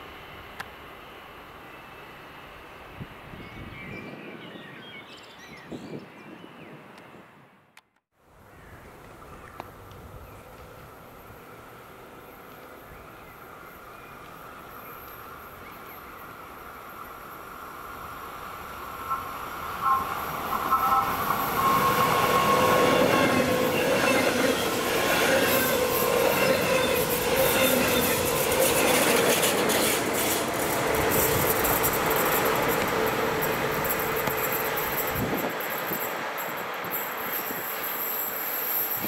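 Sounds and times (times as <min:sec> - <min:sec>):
electric train passing: 0:09.7 - 0:39.0
wheels clattering on rails: 0:20.3 - 0:39.0.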